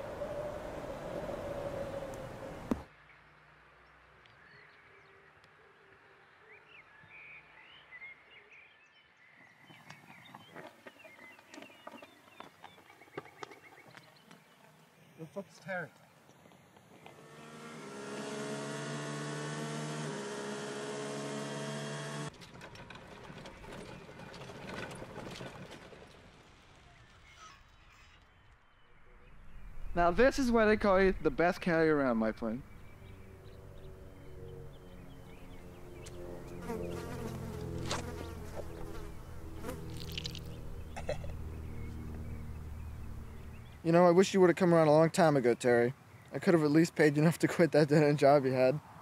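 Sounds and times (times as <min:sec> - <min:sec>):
golf cart driving and rattling: 0:16.9 - 0:27.1, 0:32.7 - 0:43.9
low buzzing drone: 0:17.0 - 0:22.3, 0:32.3 - 0:43.8
multi-pitched hum: 0:32.6 - 0:43.8
rustles: 0:36.0 - 0:43.9.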